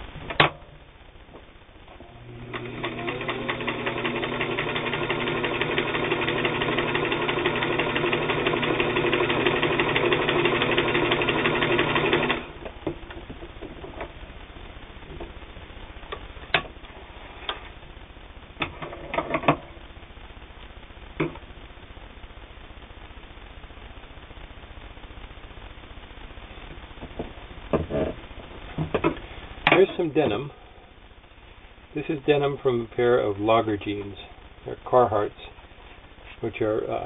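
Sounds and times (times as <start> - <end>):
sewing machine stitching: 2.1 - 12.6.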